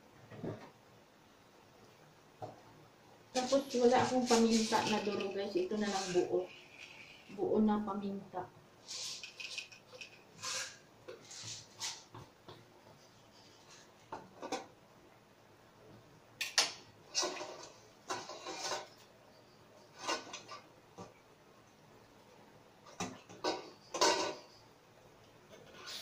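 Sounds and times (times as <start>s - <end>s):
hand rummaging in metal bowl: 3.4s - 7.0s, 8.9s - 10.6s.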